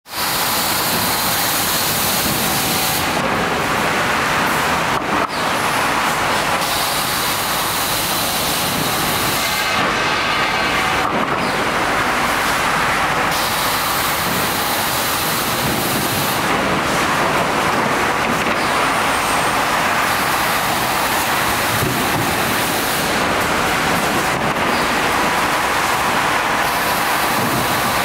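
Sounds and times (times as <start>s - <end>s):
sanding machine running: 18.9s - 28.0s.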